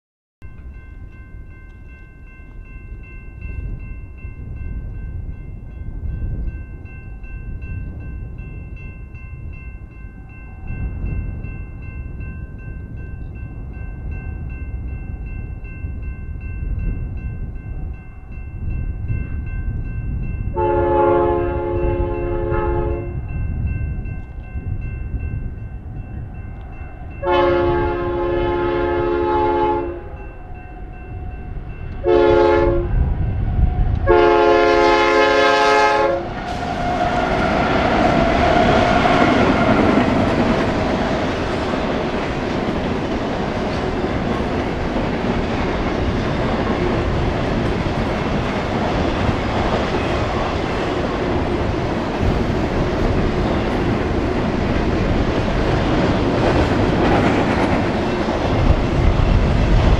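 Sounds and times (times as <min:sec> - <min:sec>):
locomotive air horn blasts: 0:20.5 - 0:23.2, 0:27.2 - 0:30.2, 0:32.0 - 0:33.0, 0:34.0 - 0:37.2.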